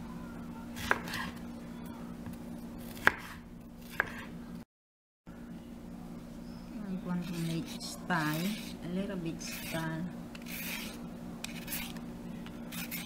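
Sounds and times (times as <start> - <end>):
steady low hum: 5.3 - 13.0.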